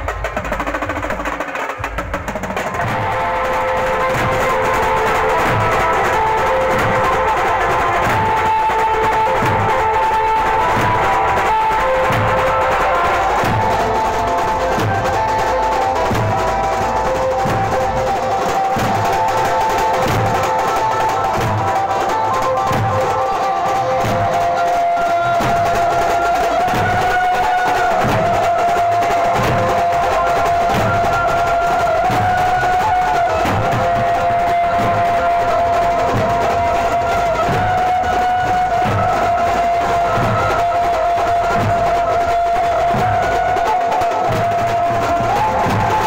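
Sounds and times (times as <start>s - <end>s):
band melody over loudspeakers: 0.0s - 46.0s
steady drum beat: 0.0s - 46.0s.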